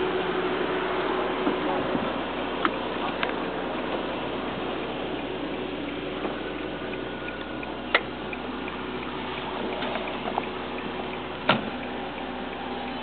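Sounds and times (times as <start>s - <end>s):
car engine and road noise: 0.0s - 13.0s
faint regular ticking: 2.6s - 13.0s.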